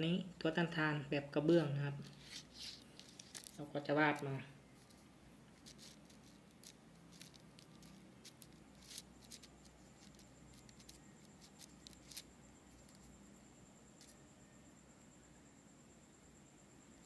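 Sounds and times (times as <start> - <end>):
faint high-pitched whine: 0.0 - 17.0
pen scratching on paper: 5.6 - 13.1.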